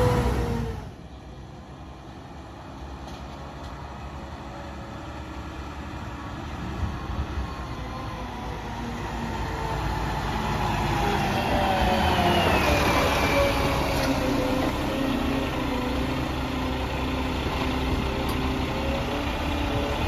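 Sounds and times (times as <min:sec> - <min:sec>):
garbage truck driving: 0:00.0 - 0:20.0
whine rising in pitch: 0:09.3 - 0:14.5.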